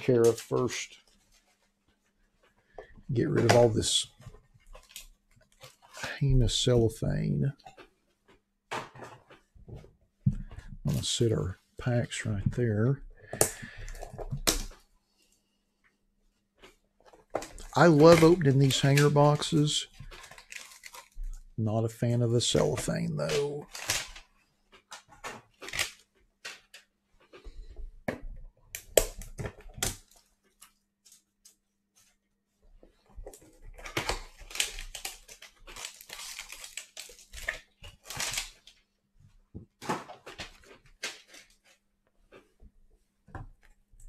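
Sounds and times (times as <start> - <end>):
boxes and packs handled clicks: 17.1 - 21.4, 33.2 - 38.8
cellophane tearing and crinkling: 17.4 - 21.5, 22.8 - 24.2, 25.4 - 26.8, 33.4 - 38.8.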